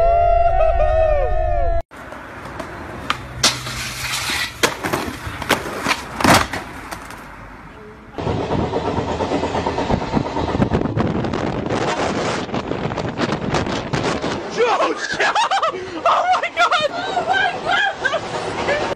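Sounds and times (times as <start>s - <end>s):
skateboard clacking on ground: 2.0s - 7.3s
wind noise on microphone: 8.2s - 14.6s.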